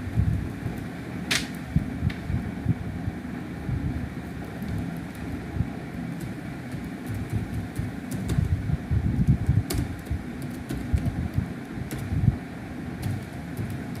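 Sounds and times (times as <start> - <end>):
low background rumble: 0.0 - 14.0
keyboard keys clicking: 6.1 - 8.6, 9.4 - 12.2, 13.0 - 14.0.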